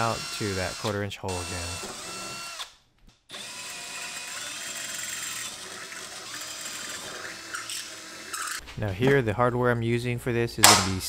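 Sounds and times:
cordless drill boring metal: 0.0s - 2.7s, 3.3s - 8.6s.

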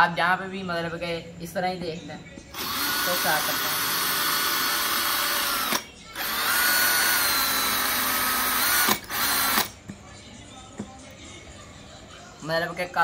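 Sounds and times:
cordless drill motor whining: 2.5s - 9.7s.

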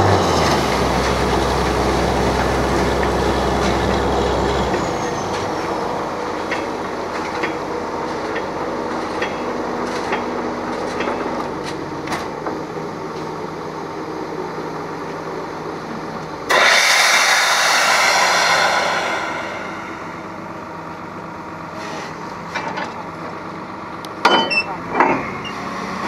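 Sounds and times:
drilling rig running: 0.0s - 12.1s, 16.5s - 21.4s
loud rushing noise: 16.5s - 21.2s.

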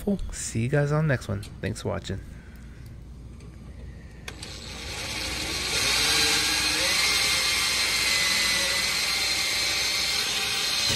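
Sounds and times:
drill whining into sheet metal: 4.3s - 10.9s.

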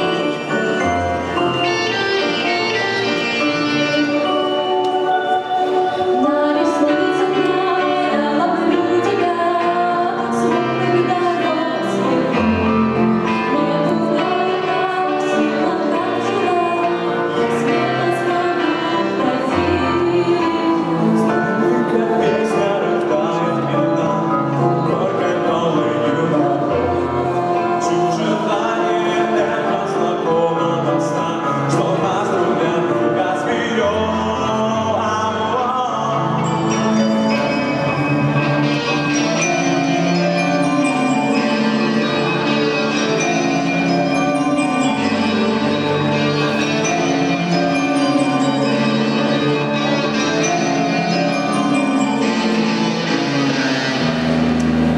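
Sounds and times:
person singing: 0.0s - 53.8s
electric guitar and keyboard: 0.0s - 54.9s
low bass-note pattern: 52.4s - 54.9s.

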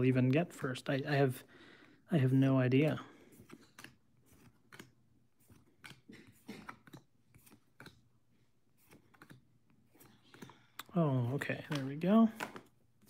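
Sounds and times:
trading cards clicking and rustling: 2.7s - 13.0s.

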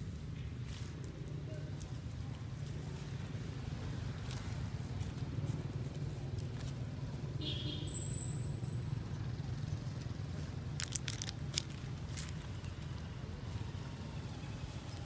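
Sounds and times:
crackling clicks: 10.7s - 12.4s.

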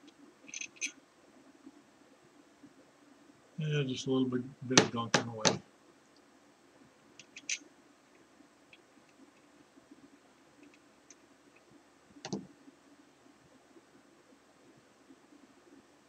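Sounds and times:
hand tools clicking: 0.5s - 0.9s.

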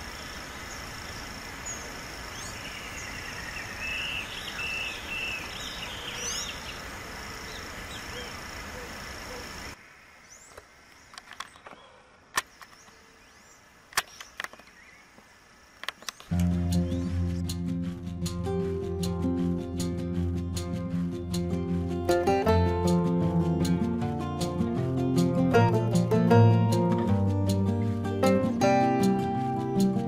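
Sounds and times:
birds chirping: 0.0s - 22.4s
sharp clicks: 10.5s - 13.0s, 13.9s - 14.8s, 15.8s - 16.6s.

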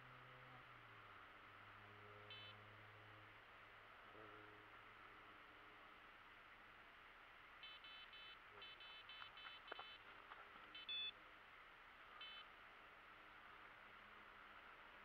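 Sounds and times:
bite alarm beeping: 2.3s - 2.6s, 7.6s - 10.0s, 10.7s - 11.2s, 12.2s - 12.5s.

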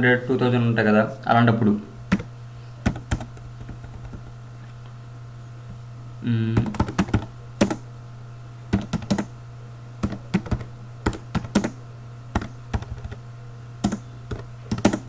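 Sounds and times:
steady low hum: 0.0s - 15.0s
keyboard typing: 2.1s - 4.3s, 6.6s - 7.8s, 8.7s - 9.3s, 10.0s - 13.2s, 13.8s - 15.0s.

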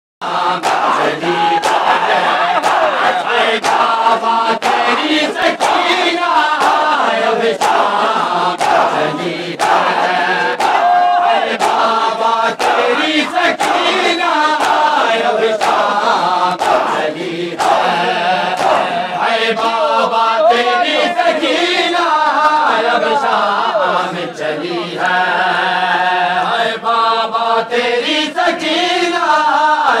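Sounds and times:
crowd of men chanting: 0.2s - 30.0s
hand slaps in a steady beat: 0.6s - 19.8s.

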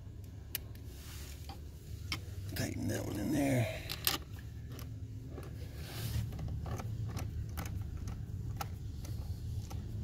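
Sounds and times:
small metallic clicks and scrapes: 3.9s - 10.0s.

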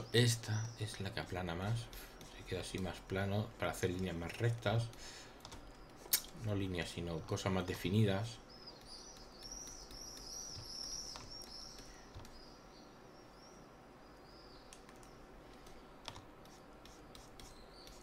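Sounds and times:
computer mouse and keyboard clicks: 3.8s - 6.4s, 8.7s - 12.4s, 14.7s - 18.0s.

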